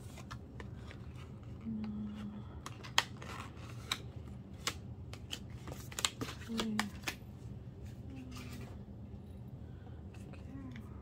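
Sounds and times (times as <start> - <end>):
packaging rustling and crinkling: 2.6 - 7.2.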